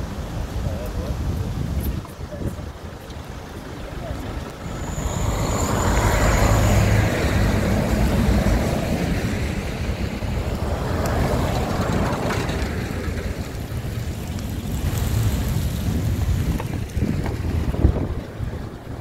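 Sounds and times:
low traffic rumble: 0:00.0 - 0:19.0
truck driving past: 0:03.6 - 0:15.3
car driving past: 0:04.0 - 0:14.2.

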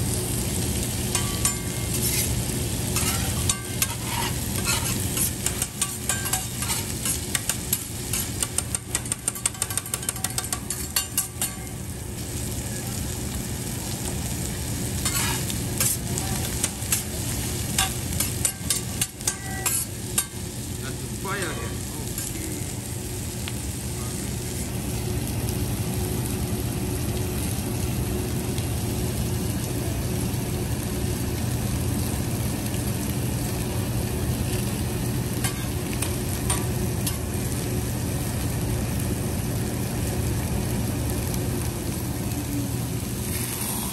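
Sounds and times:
food sizzling on hot plate: 0:00.0 - 0:43.9
metal spatulas scraping on griddle: 0:01.1 - 0:11.7, 0:15.0 - 0:20.4, 0:35.4 - 0:37.3.

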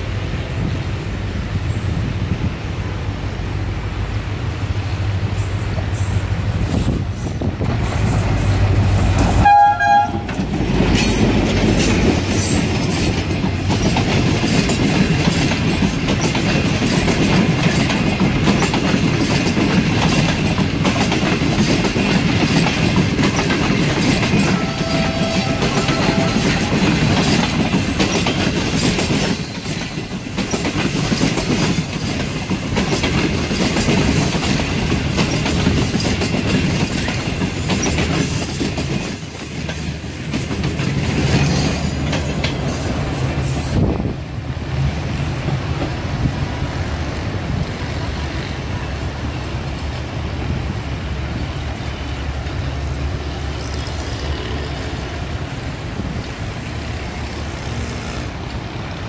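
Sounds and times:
diesel locomotive droning: 0:00.0 - 0:30.0, 0:32.7 - 0:59.0
train coaches rumbling past: 0:00.0 - 0:59.0
wheels clacking over rail joints: 0:05.6 - 0:50.1
faint train horn: 0:09.3 - 0:10.4, 0:24.4 - 0:27.4, 0:57.2 - 0:58.5
train horn blast: 0:09.3 - 0:10.4, 0:24.4 - 0:27.2, 0:57.4 - 0:58.5.

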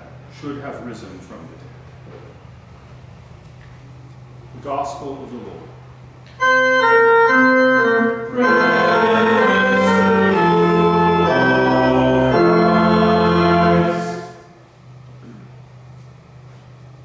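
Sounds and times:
organ playing chords: 0:06.3 - 0:15.0.

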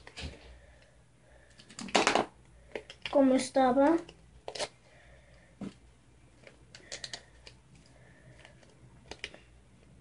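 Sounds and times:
plastic pouch clicks and rustles: 0:06.4 - 0:07.6.

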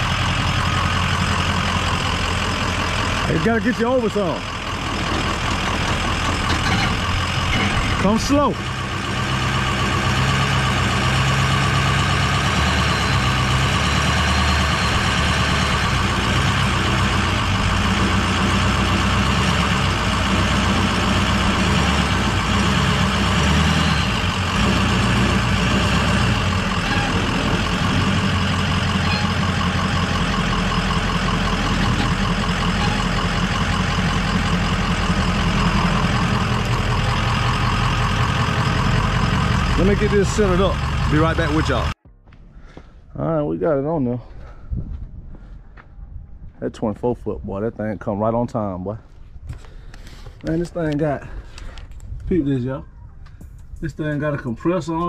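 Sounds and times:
pickup truck engine running: 0:00.0 - 0:42.0.

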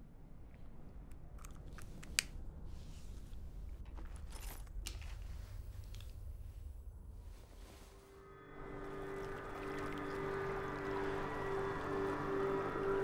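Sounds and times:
low steady rumble: 0:00.0 - 0:13.0
wet lip clicks: 0:01.1 - 0:02.3.

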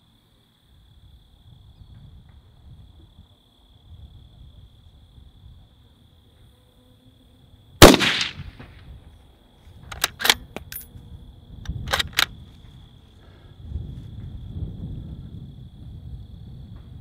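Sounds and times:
rifle shot: 0:07.8 - 0:08.8
rifle bolt clicking: 0:09.9 - 0:10.8, 0:11.9 - 0:12.3.

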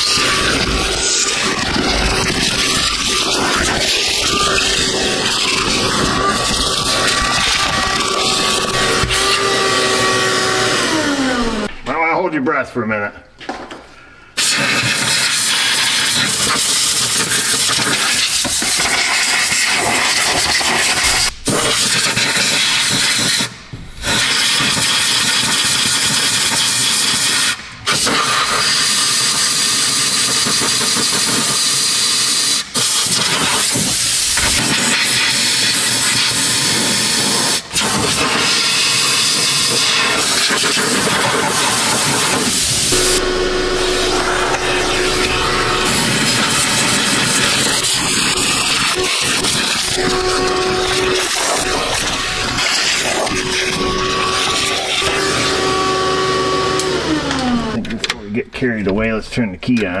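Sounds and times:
compressed air hissing: 0:14.3 - 0:55.0.

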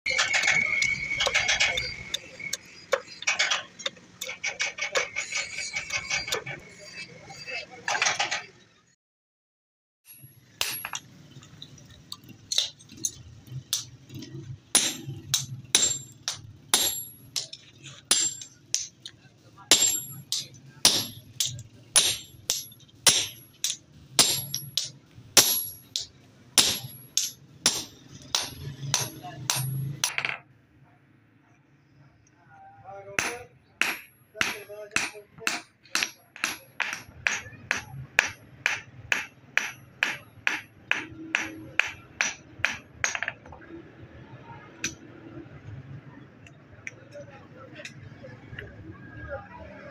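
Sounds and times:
hammer striking metal on anvil: 0:10.1 - 0:11.1, 0:12.5 - 0:19.1, 0:19.7 - 0:30.4, 0:33.2 - 0:43.5.

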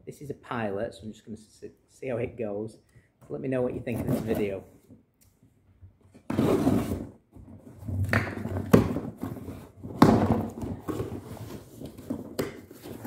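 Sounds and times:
box knocks: 0:09.9 - 0:11.3.

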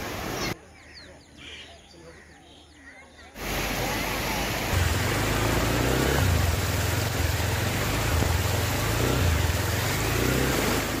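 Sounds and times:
vehicle engine humming: 0:03.4 - 0:11.0.

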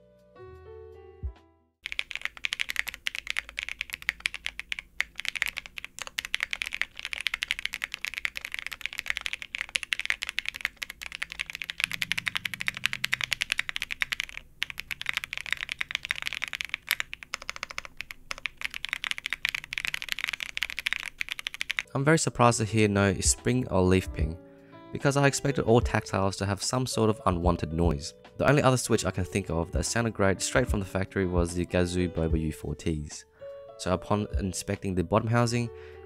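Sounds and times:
soft background music: 0:00.0 - 0:01.6, 0:10.1 - 0:15.8, 0:21.8 - 0:36.0
fast keyboard typing clacks: 0:01.8 - 0:21.9.

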